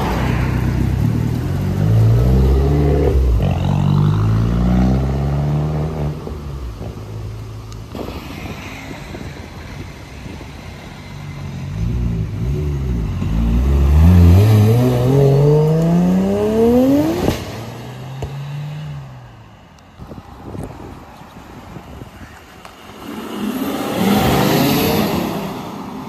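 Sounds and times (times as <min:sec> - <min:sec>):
car engine accelerating: 0:11.2 - 0:19.1.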